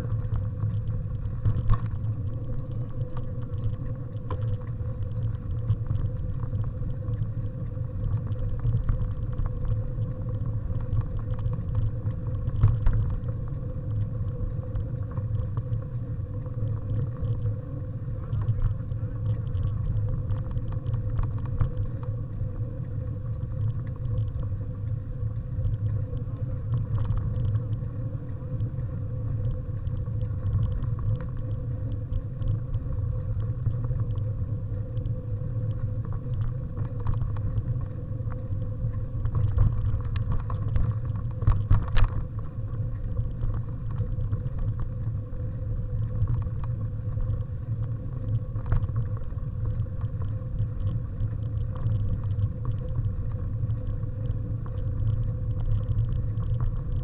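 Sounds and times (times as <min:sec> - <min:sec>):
bicycle rolling over dirt path: 0:00.0 - 0:57.0
wind: 0:00.0 - 0:57.0.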